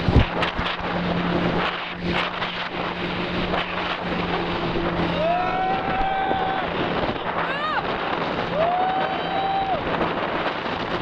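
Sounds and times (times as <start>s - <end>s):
boat engine humming: 0.0s - 11.0s
water rushing past boat: 0.0s - 11.0s
wind buffeting microphone: 0.0s - 11.0s.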